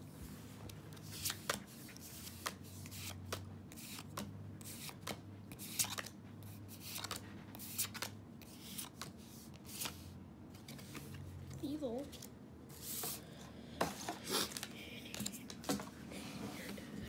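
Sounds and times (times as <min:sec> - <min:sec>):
cards flipped with snaps: 0:01.1 - 0:06.2, 0:06.8 - 0:10.0.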